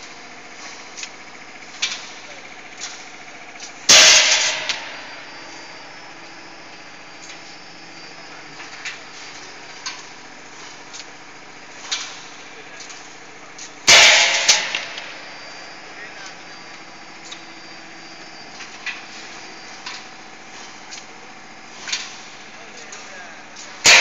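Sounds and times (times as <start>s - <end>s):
hydraulic press machine hum: 0.0s - 24.0s
loud metal clang: 3.9s - 5.4s, 13.9s - 15.5s, 23.8s - 24.0s.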